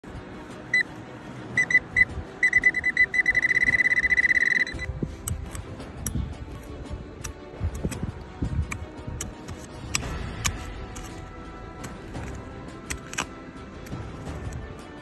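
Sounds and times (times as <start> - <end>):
metal detector beeping: 1.5 - 4.9.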